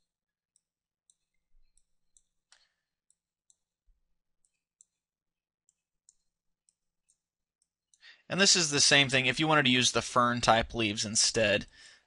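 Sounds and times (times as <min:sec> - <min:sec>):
computer mouse clicks: 0:00.0 - 0:03.7, 0:04.4 - 0:08.0.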